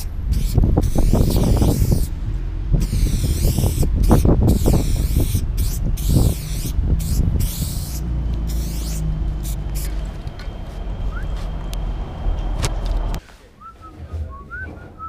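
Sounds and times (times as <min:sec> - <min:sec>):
spray paint can hissing: 0:00.0 - 0:02.2, 0:02.8 - 0:10.4
low rumble: 0:00.1 - 0:13.2.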